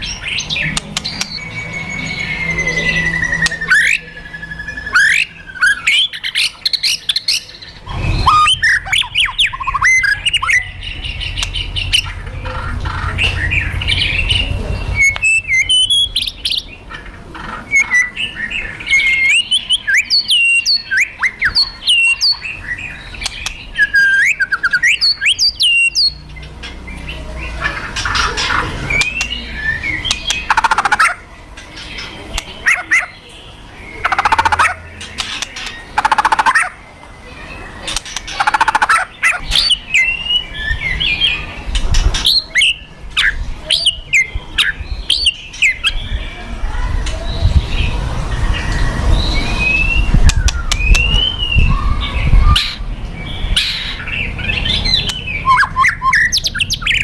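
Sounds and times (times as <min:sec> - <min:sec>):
bird whistled calls: 0:00.0 - 0:10.8, 0:14.9 - 0:16.6, 0:17.7 - 0:26.2, 0:48.6 - 0:52.8, 0:53.6 - 0:57.0.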